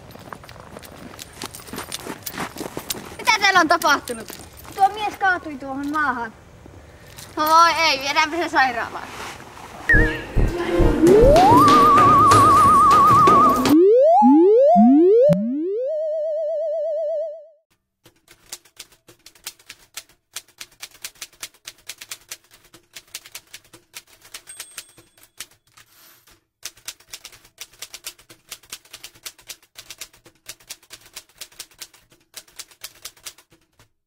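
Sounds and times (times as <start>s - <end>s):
wobbling electronic tone: 9.9s - 17.6s
typewriter keys clattering: 18.1s - 34.0s.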